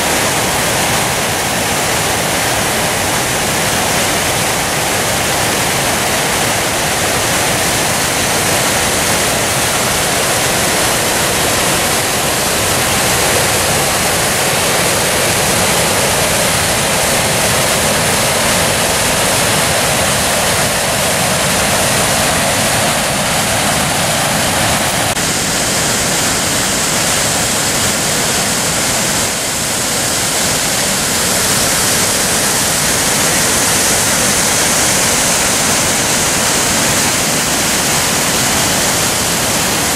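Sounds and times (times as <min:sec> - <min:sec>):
waterfall rushing over rocks: 0:00.0 - 0:39.9.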